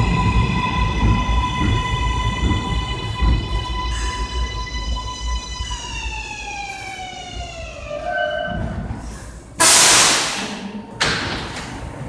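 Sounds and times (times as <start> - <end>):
subway train motors whining: 0.0 - 12.0
air hiss: 9.6 - 10.5.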